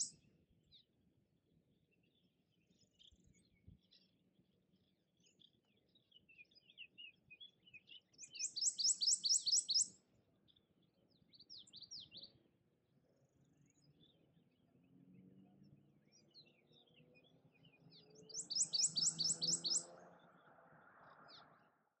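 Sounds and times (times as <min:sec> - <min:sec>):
swallows chattering chirps: 0:08.2 - 0:09.9, 0:18.2 - 0:19.9
warbler singing ringing notes: 0:08.2 - 0:09.9, 0:18.2 - 0:19.9.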